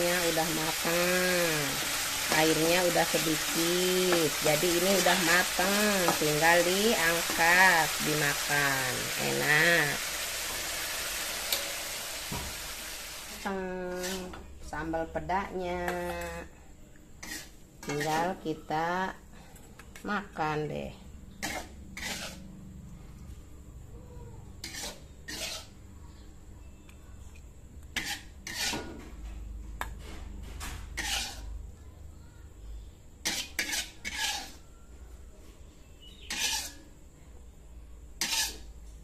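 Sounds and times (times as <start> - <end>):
spatula scraping a wok: 0.0 - 16.5, 17.2 - 18.7, 21.3 - 22.7, 24.6 - 25.9, 27.9 - 29.3, 30.0 - 31.7, 33.2 - 34.8, 35.9 - 37.0, 38.2 - 39.0.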